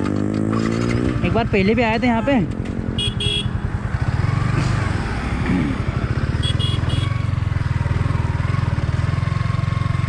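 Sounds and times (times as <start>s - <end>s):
motorcycle engine pulling away: 0.0s - 1.6s, 3.6s - 10.0s.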